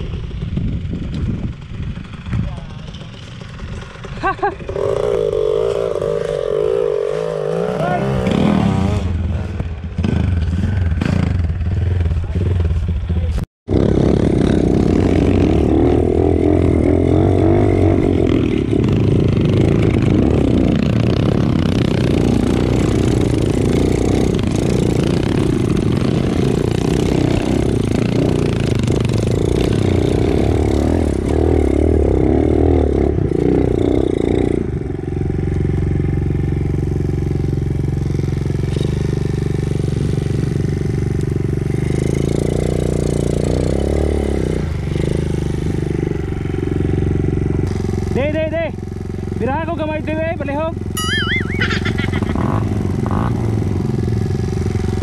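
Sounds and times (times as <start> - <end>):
bike clattering and scraping: 0.8 - 7.4.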